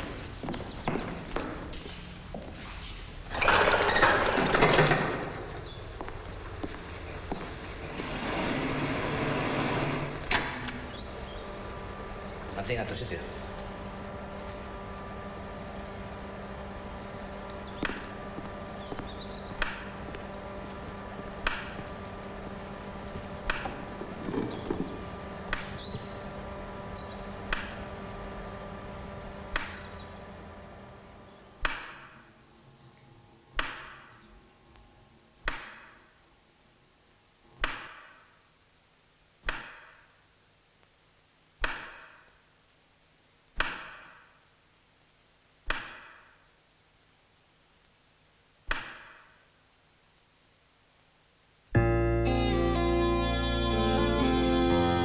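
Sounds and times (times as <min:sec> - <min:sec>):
steady electrical hum: 0:00.0 - 0:55.0.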